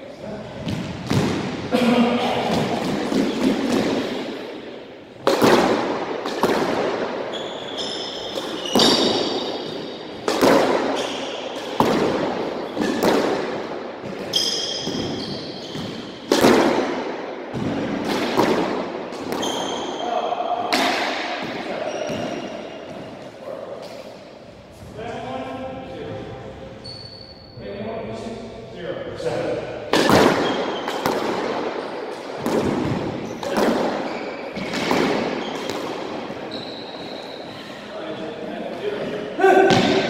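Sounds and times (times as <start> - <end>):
squash ball hits echoing: 0.6 - 24.2, 29.6 - 37.3, 39.4 - 40.0
sneakers squeaking on wooden floor: 6.7 - 13.3, 14.0 - 16.3, 19.2 - 20.7, 21.4 - 24.1, 26.5 - 27.6, 30.1 - 31.2, 32.1 - 37.8.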